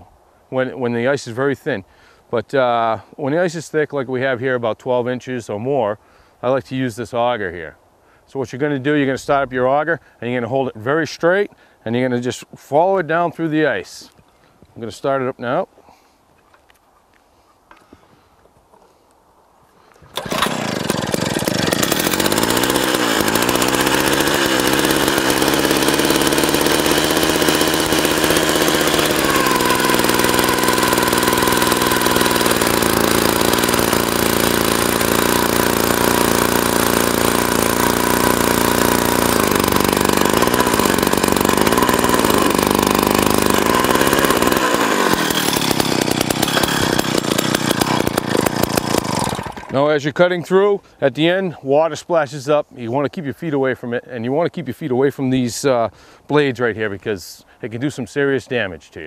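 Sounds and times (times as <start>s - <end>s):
ice auger engine running: 20.1s - 49.8s.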